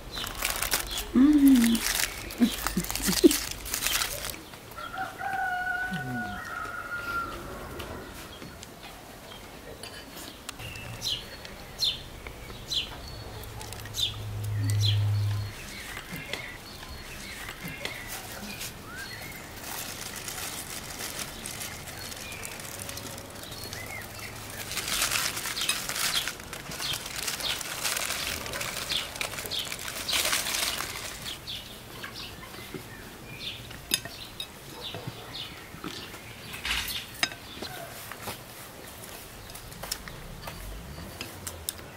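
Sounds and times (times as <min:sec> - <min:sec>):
rustling noise with clicks: 0:00.0 - 0:04.6, 0:17.2 - 0:32.2
small birds chirping: 0:00.0 - 0:37.9.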